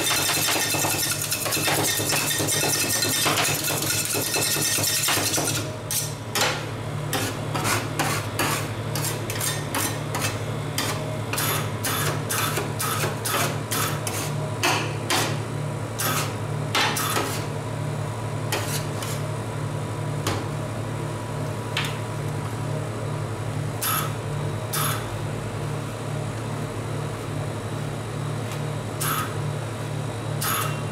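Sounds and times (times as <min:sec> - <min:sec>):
low machine hum: 0:00.0 - 0:30.9
spatulas scraping: 0:07.1 - 0:11.5.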